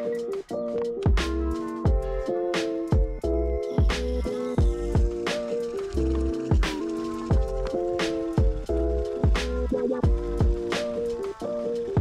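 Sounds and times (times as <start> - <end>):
held chords: 0.0 - 12.0
deep drum beat: 1.1 - 2.1, 4.6 - 5.3, 5.9 - 11.0.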